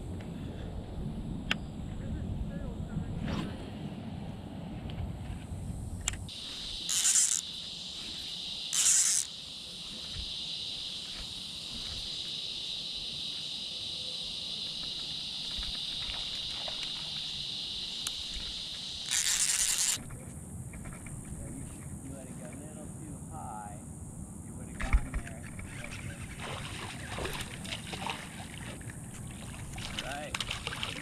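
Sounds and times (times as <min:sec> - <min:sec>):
shrill insect chorus: 0:05.7 - 0:31.0
short hissing bursts: 0:06.3 - 0:13.7.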